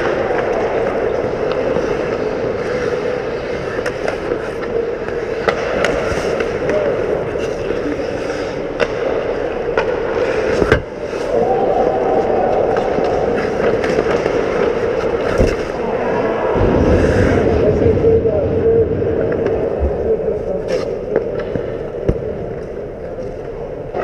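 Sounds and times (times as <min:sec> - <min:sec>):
hockey skates scraping ice: 0:00.0 - 0:11.4, 0:12.3 - 0:16.2
sticks and puck clacking: 0:00.0 - 0:15.8, 0:20.6 - 0:24.0.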